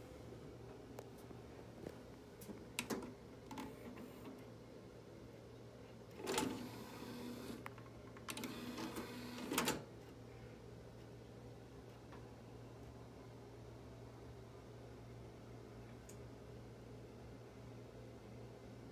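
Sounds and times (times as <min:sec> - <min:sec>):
loading motor whirring: 0:08.3 - 0:09.8.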